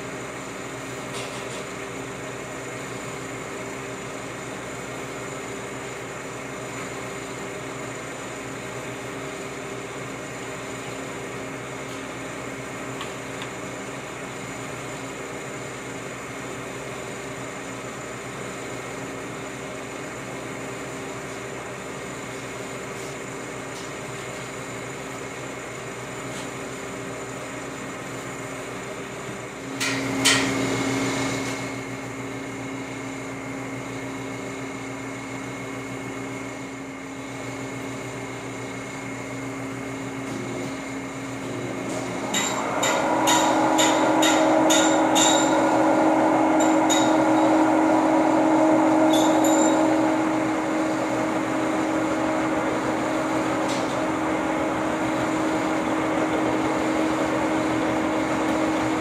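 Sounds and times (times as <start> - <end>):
machine hum: 30.8 - 59.0
sharp metal knock: 42.3 - 45.6.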